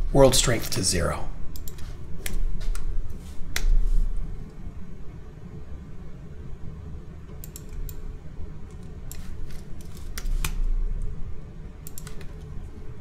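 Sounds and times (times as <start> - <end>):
low background noise: 0.0 - 13.0
keyboard and mouse clicks: 1.5 - 2.9, 7.4 - 8.0, 11.8 - 12.4.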